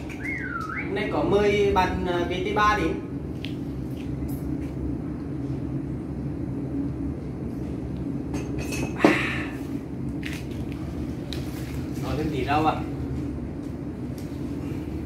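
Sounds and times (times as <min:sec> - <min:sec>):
tableware clink: 0:08.4 - 0:09.2.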